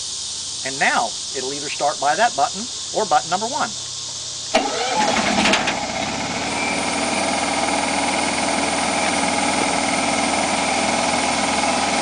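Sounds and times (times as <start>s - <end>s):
steady high whine: 0.0s - 12.0s
generator engine running: 4.4s - 12.0s.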